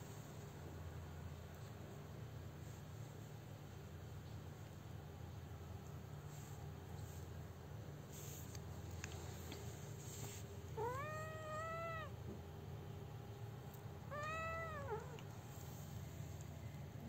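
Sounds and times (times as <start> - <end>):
kitten mewing: 10.8 - 12.2, 14.0 - 15.3.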